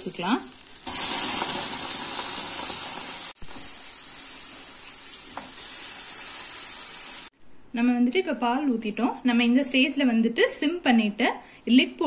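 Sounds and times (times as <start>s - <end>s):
pumpkin sizzling in a frying pan: 0.0s - 7.3s.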